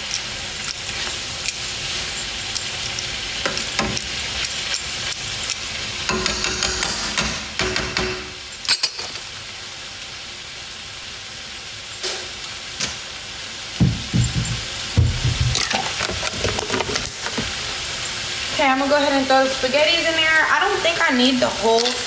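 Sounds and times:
food sizzling in a frying pan: 0:00.0 - 0:22.0
dull knocks: 0:13.8 - 0:16.2
utensil scraping a pan: 0:15.4 - 0:17.6.

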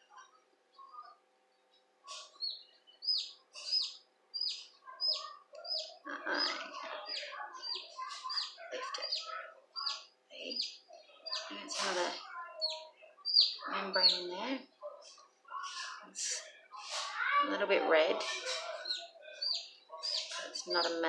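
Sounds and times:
chick peeping: 0:02.1 - 0:16.4, 0:18.1 - 0:21.0.

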